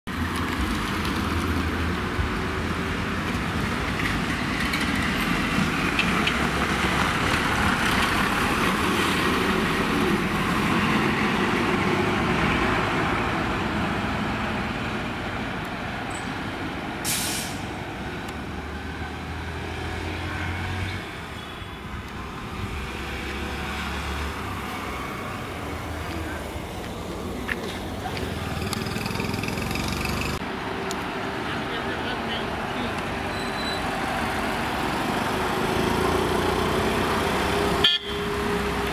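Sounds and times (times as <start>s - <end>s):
air brake hiss: 17.0s - 17.8s.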